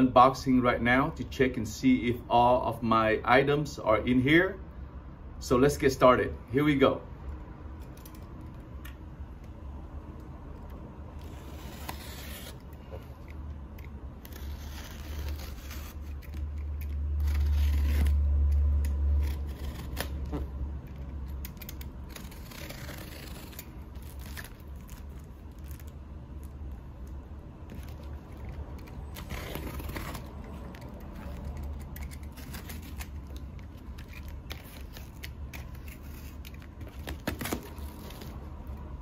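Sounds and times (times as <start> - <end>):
utility knife cutting tape: 10.6 - 38.8
tape tearing and scraping: 10.6 - 39.0.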